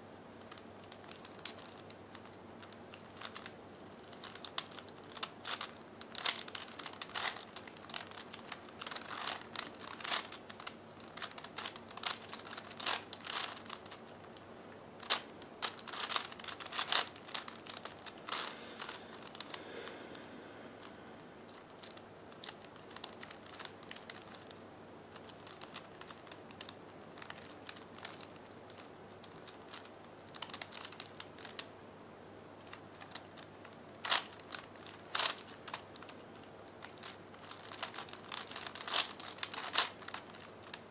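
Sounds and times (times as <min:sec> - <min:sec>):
puzzle cube clicking: 0:00.5 - 0:03.5, 0:04.1 - 0:14.0, 0:15.0 - 0:19.6, 0:36.8 - 0:40.8.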